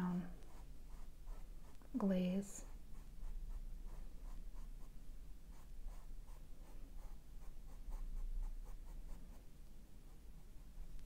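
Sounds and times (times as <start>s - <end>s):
paintbrush dabbing on canvas: 0.2s - 9.5s.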